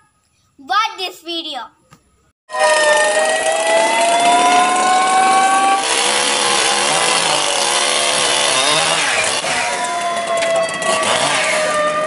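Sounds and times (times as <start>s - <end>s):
chainsaw cutting tree trunk: 3.1s - 12.0s.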